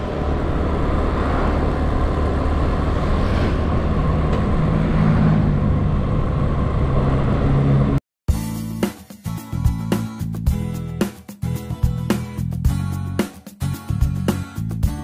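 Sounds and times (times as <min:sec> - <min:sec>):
road noise: 0:00.0 - 0:08.0.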